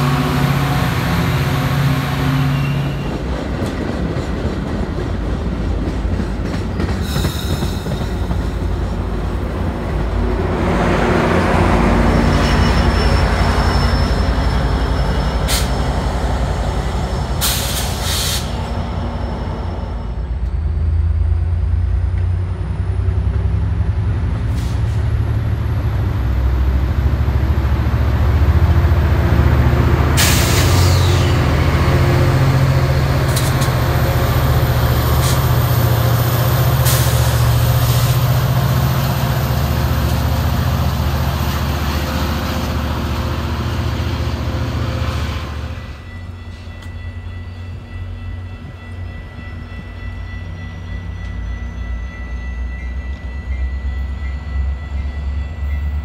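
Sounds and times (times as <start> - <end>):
diesel train rumbling past: 0.0 - 56.0
high wheel squeal: 2.3 - 3.2, 12.0 - 20.3, 30.2 - 31.8.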